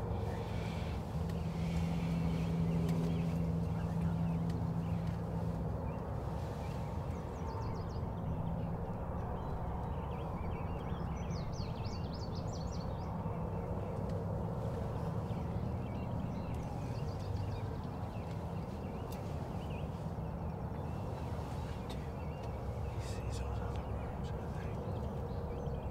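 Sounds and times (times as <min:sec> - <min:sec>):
songbirds chirping: 0:00.0 - 0:25.9
steady low rumble: 0:00.0 - 0:25.9.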